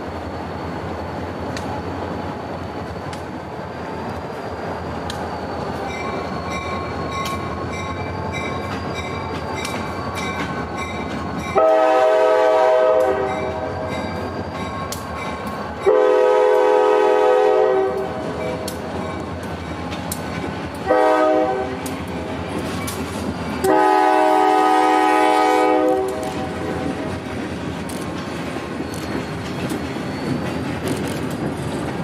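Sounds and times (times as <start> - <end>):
diesel locomotive rumble: 0.0 - 32.0
crossing bell ringing: 5.7 - 12.0, 13.1 - 16.0, 18.3 - 20.0
train air horn blasts: 11.6 - 13.9, 15.8 - 18.9, 20.8 - 22.4, 23.6 - 27.1.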